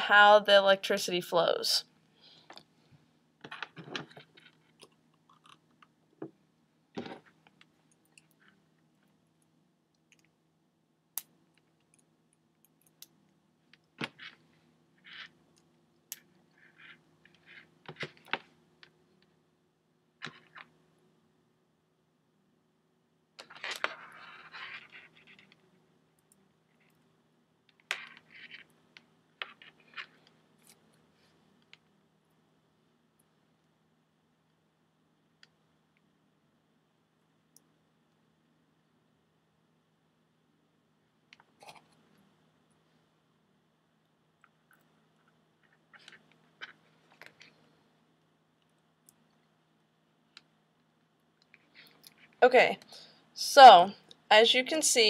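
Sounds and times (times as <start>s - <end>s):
wires and clips rustling and clicking: 2.3s - 10.3s, 11.2s - 19.3s, 20.2s - 20.8s, 23.4s - 27.0s, 27.7s - 31.9s, 44.4s - 47.8s, 50.3s - 52.4s.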